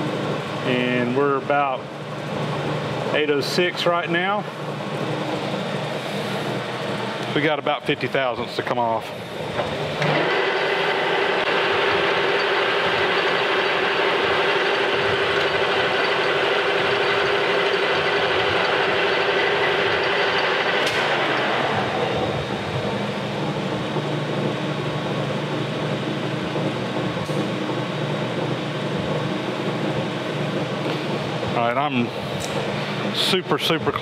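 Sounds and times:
metal lathe cutting: 9.3 - 26.4.

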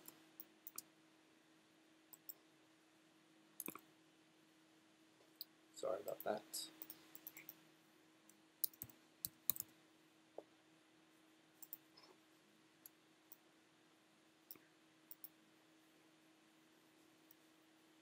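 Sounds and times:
faint steady hum: 0.0 - 18.0
mouse clicks: 2.1 - 2.4, 3.6 - 3.8, 6.8 - 7.6, 8.3 - 9.7, 11.6 - 11.9, 14.5 - 15.3.

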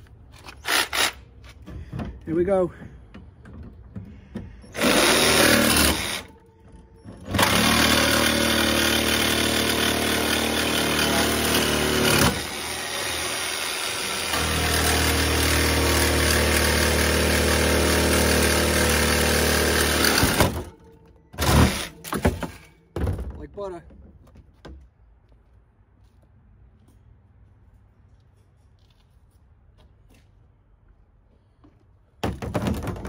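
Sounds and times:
jigsaw cutting through steel wire: 0.6 - 1.2, 4.8 - 6.4, 7.3 - 20.7, 21.4 - 22.1.

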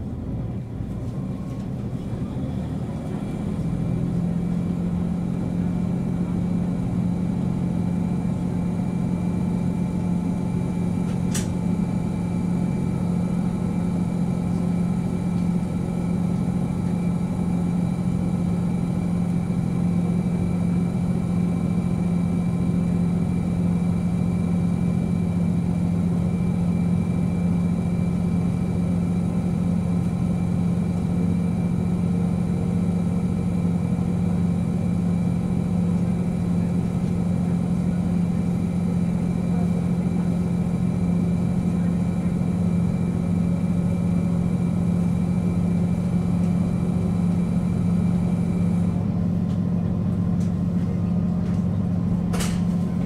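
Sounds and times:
diesel railcar engine idling: 0.0 - 53.0
short click: 11.1 - 11.6.

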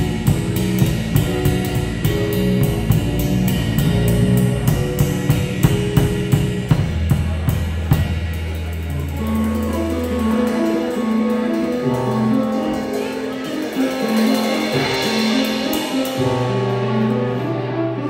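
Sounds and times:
drum hits: 0.0 - 17.2
walking bass line: 0.0 - 18.0
cymbal strokes: 8.2 - 17.8.

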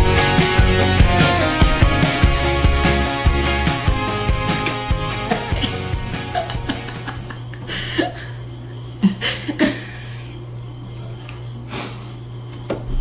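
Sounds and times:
people breathing and chuckling: 5.2 - 10.4
low electrical hum: 5.2 - 13.0.

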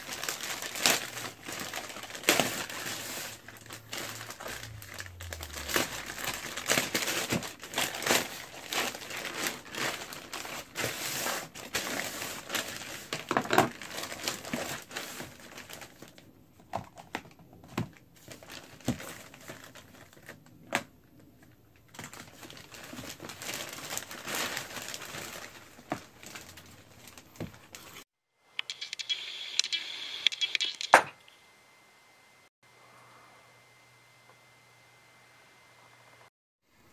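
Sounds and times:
plastic bag tearing and crinkling: 0.0 - 16.2, 18.3 - 20.9, 21.9 - 28.0.

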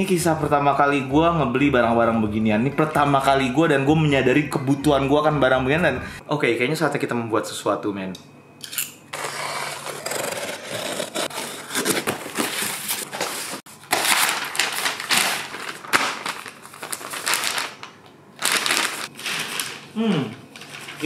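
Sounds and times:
cardboard and plastic rustling: 10.0 - 21.0.

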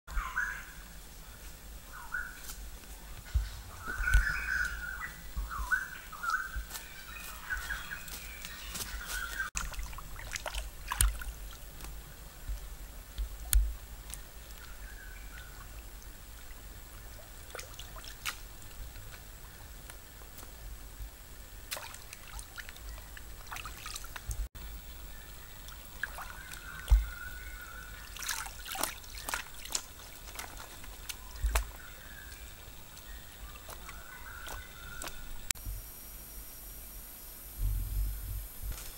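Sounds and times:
birds chirping: 0.1 - 9.6, 24.6 - 35.5
stream water splashing and trickling: 2.4 - 35.6
water drips: 9.4 - 20.5, 21.7 - 35.6.

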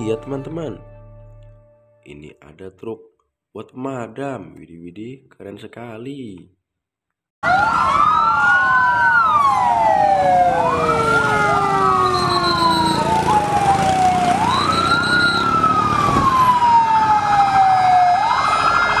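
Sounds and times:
fire engine sirens wailing: 7.4 - 19.0.

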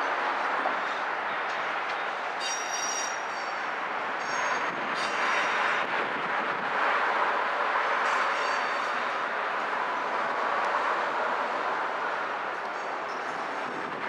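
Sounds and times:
wheels squealing against rails: 0.0 - 5.9, 7.8 - 9.3, 12.5 - 14.0.

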